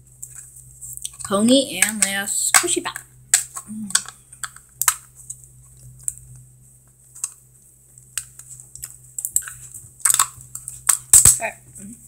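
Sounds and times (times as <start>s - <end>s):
plastic capsule clicking and crackling: 1.0s - 5.0s.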